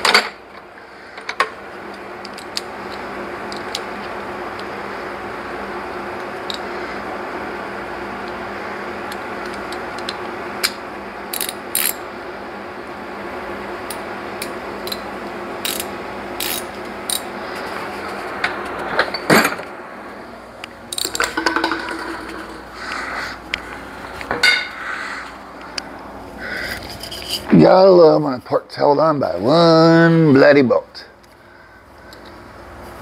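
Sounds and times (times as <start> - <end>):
low hum: 16.5 - 27.5.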